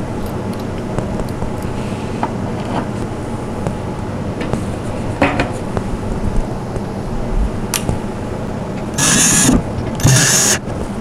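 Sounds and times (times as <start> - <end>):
cordless drill driving screw: 9.0 - 10.6.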